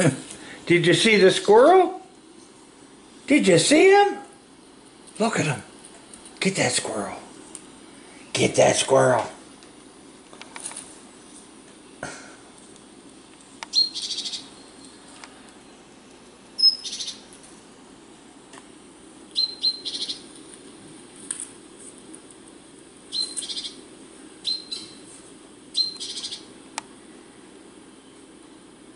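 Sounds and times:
faint steady hum: 0.0s - 28.9s
bird chirps and trills: 13.7s - 15.0s, 16.6s - 17.3s, 19.3s - 20.3s, 23.1s - 23.8s, 24.4s - 25.0s, 25.7s - 26.5s.

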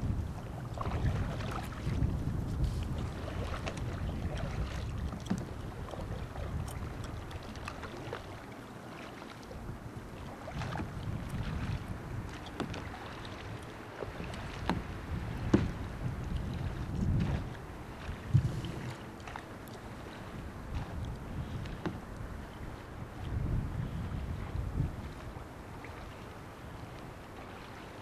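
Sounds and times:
paddle splashing in water: 0.0s - 28.0s
wind rumbling on microphone: 0.0s - 28.0s.

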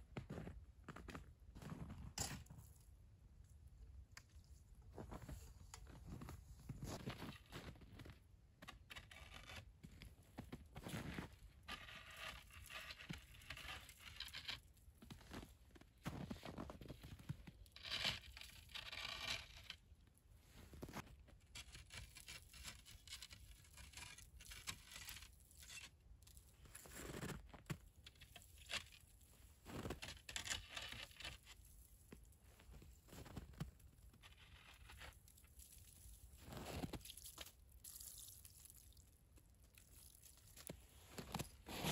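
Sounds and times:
footsteps crunching in snow: 5.0s - 8.1s, 9.9s - 11.3s, 29.6s - 30.0s, 32.5s - 33.6s, 41.0s - 41.9s.

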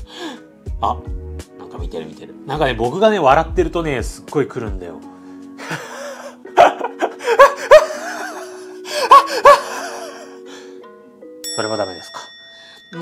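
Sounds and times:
soft background music: 0.0s - 13.0s
man laughing loudly: 5.6s - 10.4s.

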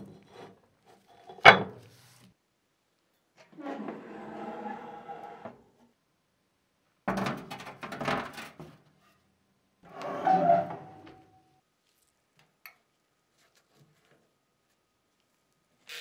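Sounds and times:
oven door creaking: 9.9s - 11.3s.

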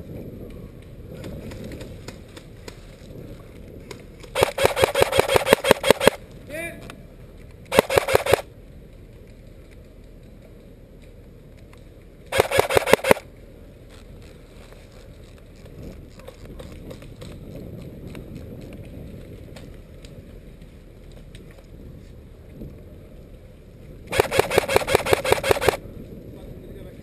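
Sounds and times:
wind: 0.0s - 27.0s
airsoft rifle full-auto burst: 4.4s - 6.2s, 7.7s - 8.4s, 12.3s - 13.2s, 24.1s - 25.8s.

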